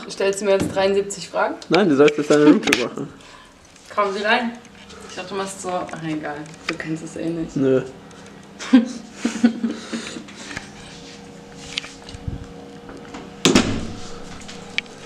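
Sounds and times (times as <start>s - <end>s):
faint steady hum: 0.0s - 15.0s
loud thump: 13.5s - 14.0s.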